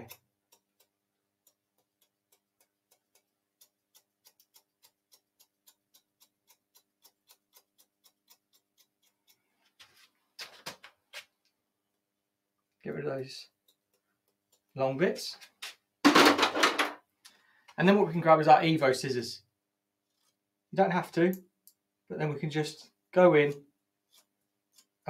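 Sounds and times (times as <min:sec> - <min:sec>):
scissors snipping hair: 0:00.0 - 0:09.4.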